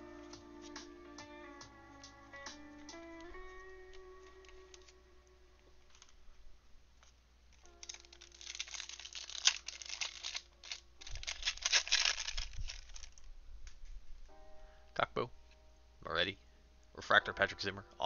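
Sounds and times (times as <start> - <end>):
quiet background music: 0.0 - 18.0
foil wrapper tearing and crinkling: 7.6 - 13.3.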